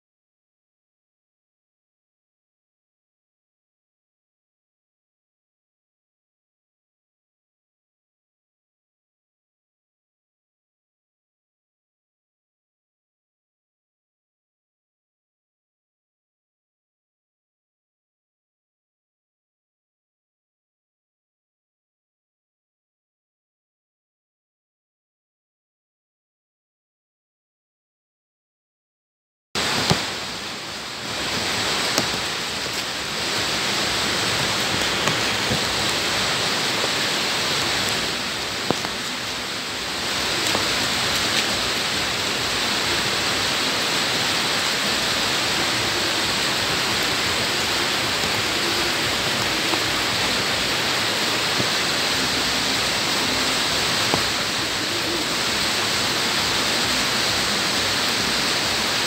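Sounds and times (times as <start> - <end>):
heavy rain on ground: 29.6 - 59.0.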